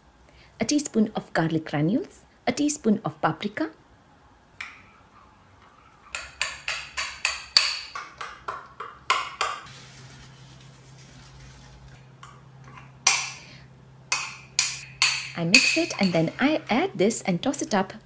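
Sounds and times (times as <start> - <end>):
spoon clinking in glass bowl: 14.1 - 16.4
spoon clinking on glass dish: 14.1 - 16.4.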